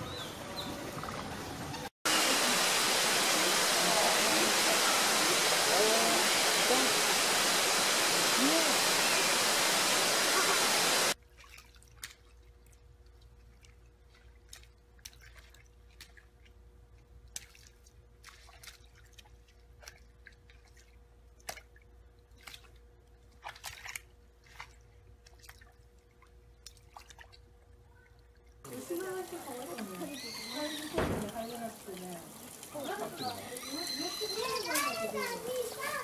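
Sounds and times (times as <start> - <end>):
water drips and splashes: 2.5 - 36.0
animal wallowing in mud: 28.7 - 36.0.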